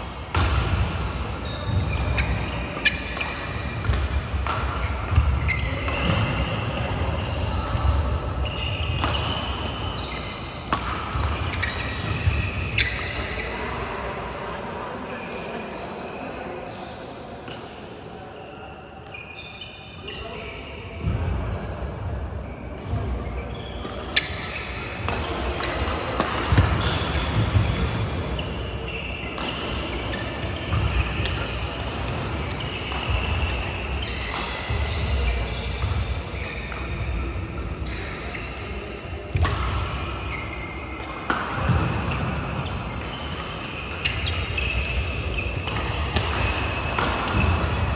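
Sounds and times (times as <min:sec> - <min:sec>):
shoes squeaking and thudding on court: 0:00.3 - 0:13.7, 0:22.4 - 0:38.7, 0:39.3 - 0:47.9
racket striking shuttlecock: 0:02.0 - 0:04.8, 0:08.8 - 0:09.7, 0:10.6 - 0:12.1, 0:23.8 - 0:27.2, 0:39.3 - 0:39.9, 0:41.0 - 0:47.8.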